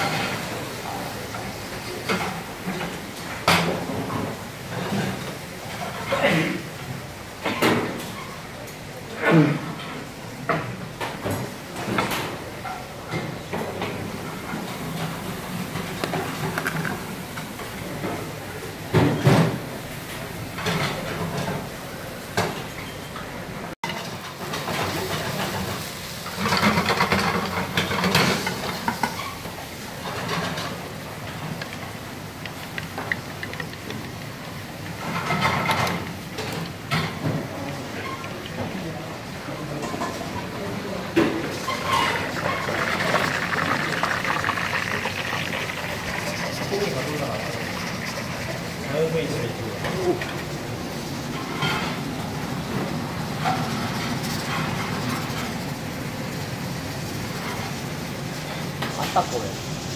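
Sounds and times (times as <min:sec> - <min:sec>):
utensils clattering on steel counters: 0:23.8 - 0:38.8, 0:45.4 - 0:56.3.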